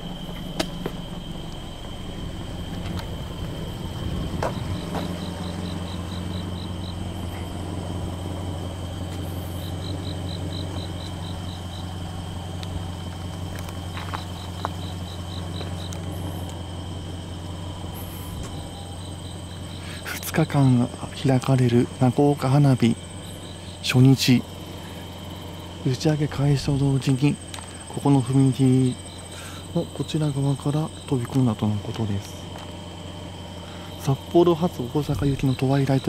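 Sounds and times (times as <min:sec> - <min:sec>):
insects chirping: 0:00.0 - 0:36.0
steady low hum: 0:00.0 - 0:36.0
thin high whine: 0:14.0 - 0:25.0.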